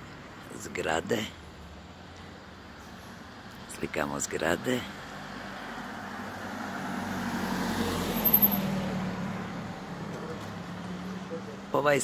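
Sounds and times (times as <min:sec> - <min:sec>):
car driving past: 0:05.2 - 0:11.7.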